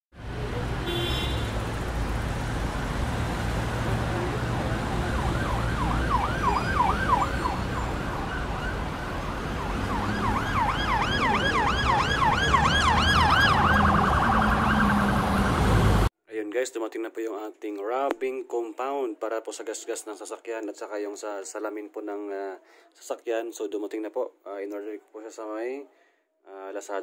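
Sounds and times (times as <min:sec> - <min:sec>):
siren yelping: 0:04.1 - 0:15.9.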